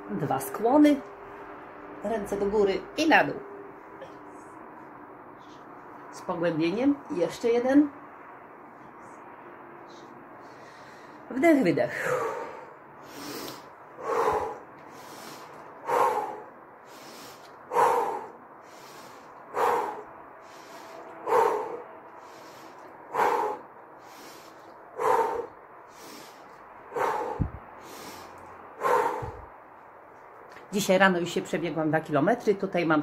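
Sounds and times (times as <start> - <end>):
woman breathing deeply: 9.9 - 11.3, 12.0 - 29.6.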